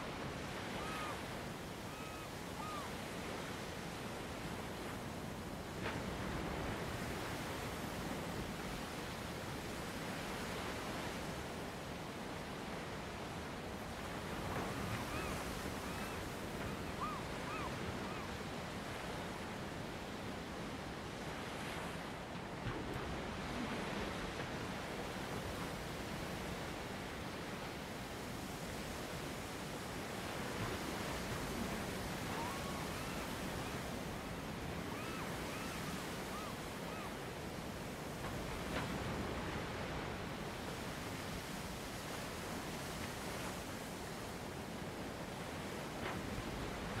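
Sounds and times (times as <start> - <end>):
sea surf: 0.0 - 47.0
wind: 0.0 - 47.0
faint whistled calls: 0.6 - 1.3, 1.9 - 3.0, 14.7 - 18.3, 32.2 - 33.9, 34.9 - 37.2.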